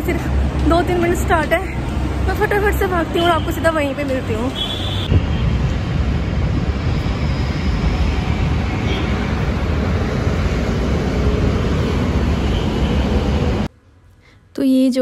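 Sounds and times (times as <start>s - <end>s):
wind buffeting microphone: 5.1s - 13.6s.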